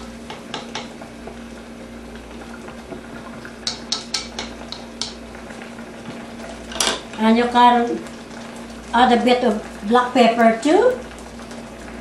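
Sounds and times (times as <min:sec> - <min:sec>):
sauce bubbling in a wok: 0:00.0 - 0:12.0
chopsticks tapping a wok: 0:00.2 - 0:01.1, 0:03.6 - 0:05.2.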